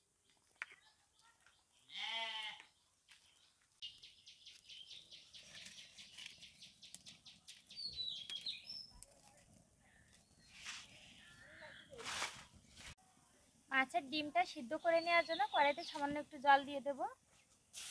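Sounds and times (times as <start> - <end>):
goat bleating: 1.9 - 2.7
bird chirps: 3.4 - 9.0
dry leaves crackling in fire: 5.4 - 11.3, 17.6 - 17.9.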